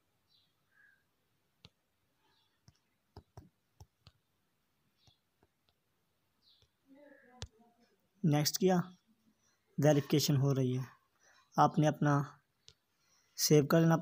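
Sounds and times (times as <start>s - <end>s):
touchscreen keyboard taps: 2.6s - 4.2s.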